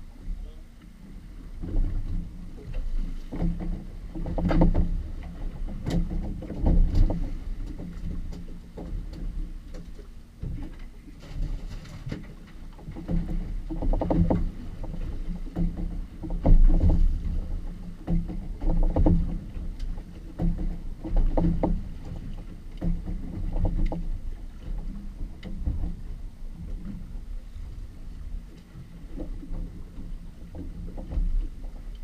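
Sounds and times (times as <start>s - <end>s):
steady low rumble: 0.0s - 32.0s
water slapping against boat hull: 0.0s - 32.0s.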